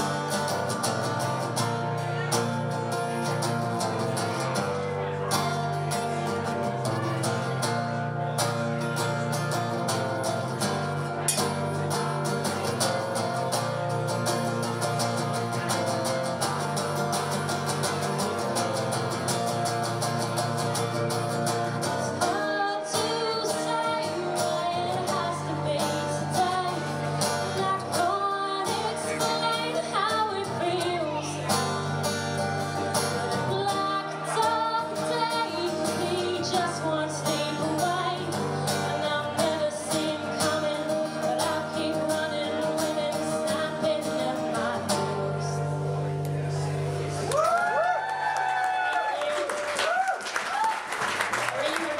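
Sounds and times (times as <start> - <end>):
acoustic guitar strumming: 0.0 - 47.3
woman singing through a pa: 22.2 - 26.9, 27.5 - 31.6, 33.4 - 45.6.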